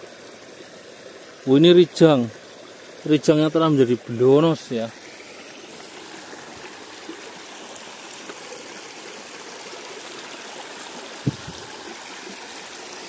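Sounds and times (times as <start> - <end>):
river water trickling over stones: 0.0 - 13.0
short knock: 11.3 - 11.6.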